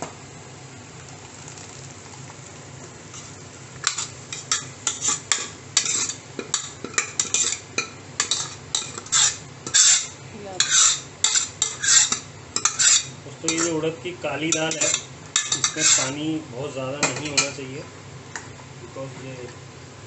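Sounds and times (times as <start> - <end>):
steel ladle scraping metal pot: 3.1 - 6.6, 8.2 - 13.8, 14.5 - 16.2.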